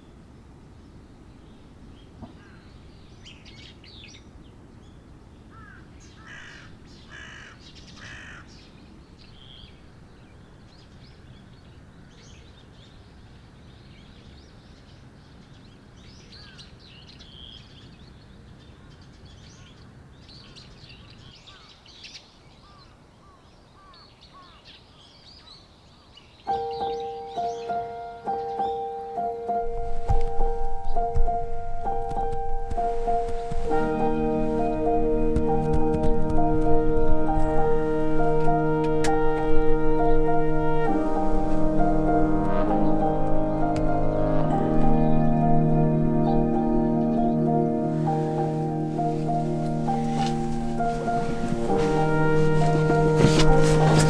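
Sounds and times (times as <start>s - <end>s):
small birds chirping: 0.8s - 36.6s
crow cawing: 5.5s - 8.5s.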